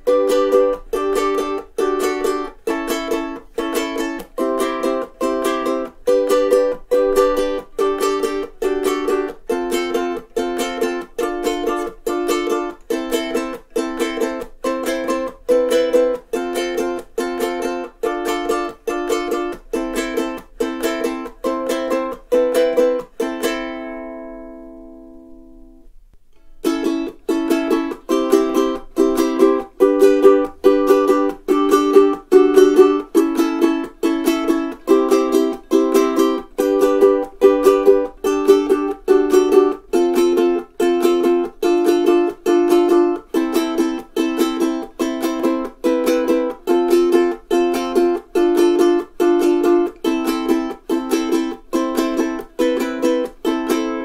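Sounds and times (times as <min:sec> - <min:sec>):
ukulele strummed chords: 0:00.0 - 0:54.0.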